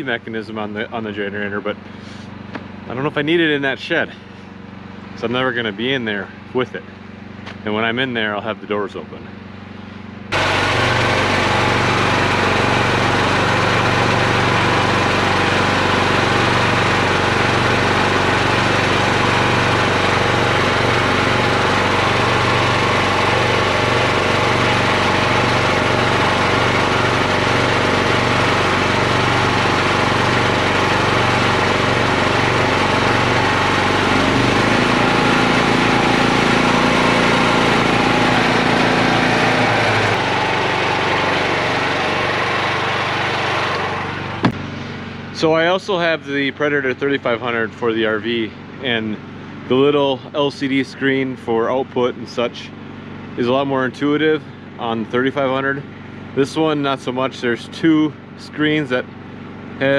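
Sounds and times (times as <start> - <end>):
generator engine running: 0.0 - 59.9.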